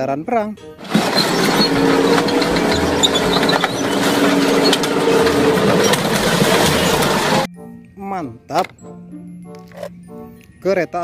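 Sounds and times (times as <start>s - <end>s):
tank engine running hard: 0.7s - 7.5s
metal and glass crunching: 0.8s - 7.5s.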